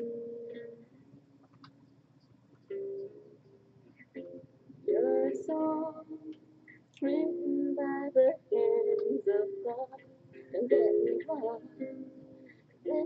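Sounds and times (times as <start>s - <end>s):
woman singing: 4.9s - 6.4s, 7.0s - 12.1s.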